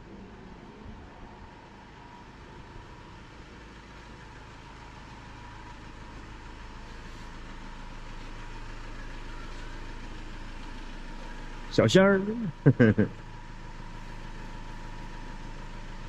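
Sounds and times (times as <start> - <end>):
motorhome engine idling: 0.0 - 16.0.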